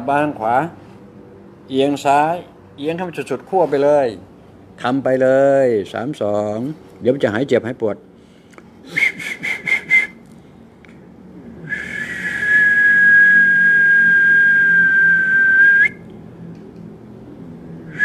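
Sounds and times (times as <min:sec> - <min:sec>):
person whistling: 0:08.9 - 0:10.2, 0:11.7 - 0:16.0.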